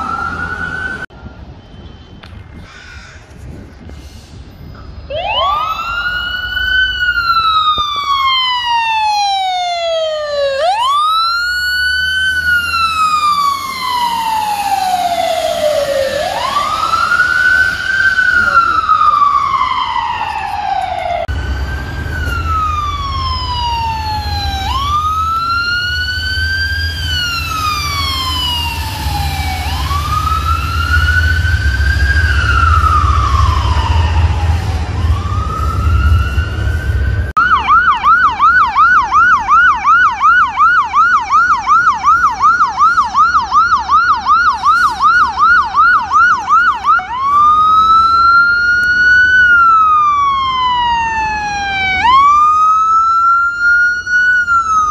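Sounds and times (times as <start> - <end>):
ambulance siren wailing: 0.0 - 1.4, 4.8 - 54.9
ambulance siren yelp: 0.0 - 1.4, 4.8 - 54.9
low rumble: 21.2 - 37.4.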